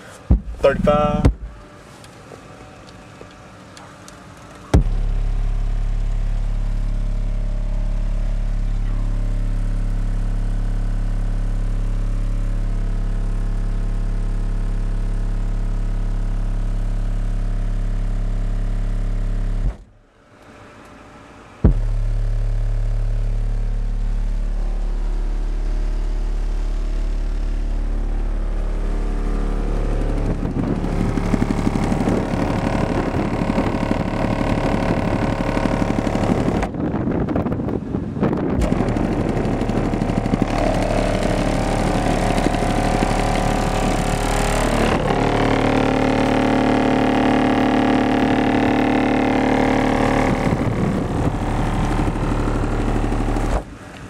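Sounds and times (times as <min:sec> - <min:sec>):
deep bass test tone: 0:00.3 - 0:01.7, 0:04.7 - 0:20.0, 0:21.6 - 0:53.8.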